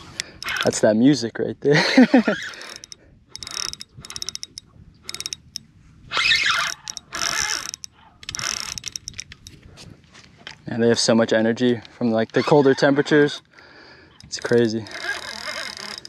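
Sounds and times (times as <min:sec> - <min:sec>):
fishing reel drag clicking: 0:00.0 - 0:00.8, 0:02.3 - 0:09.6, 0:14.1 - 0:16.0
reel being cranked: 0:00.0 - 0:00.8, 0:02.2 - 0:09.6, 0:14.1 - 0:16.0.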